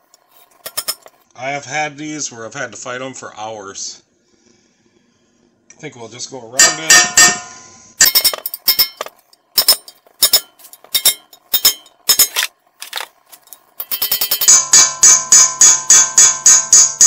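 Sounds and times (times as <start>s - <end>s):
hammer striking steel chisel: 6.6s - 13.0s.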